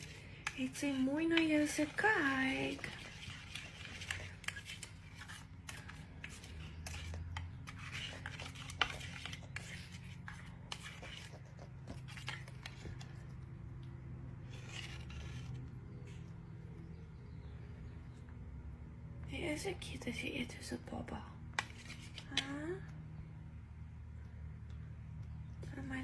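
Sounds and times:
faint low hum: 0.0 - 26.0
cockatoo beak clicks and crackles: 2.7 - 16.9.

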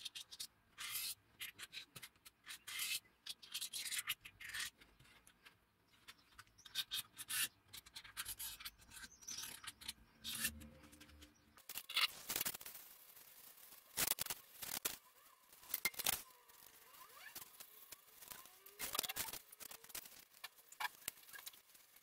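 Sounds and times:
marker scratching on block: 0.1 - 4.7, 6.6 - 11.2.

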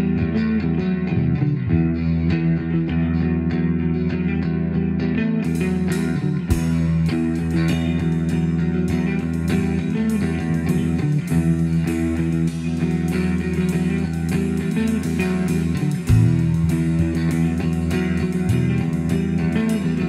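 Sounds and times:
bass guitar riffing: 0.0 - 20.0
electric guitar riffing: 0.0 - 20.0
drum kit and cymbals: 5.4 - 20.0.

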